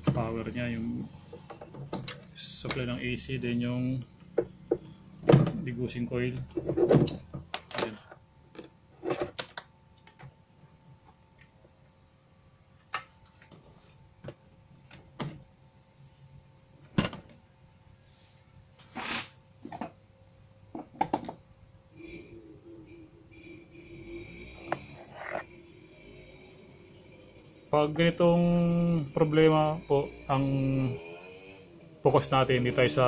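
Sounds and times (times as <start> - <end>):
faint steady hum: 0.0 - 33.0
brief scrape: 18.2 - 19.4.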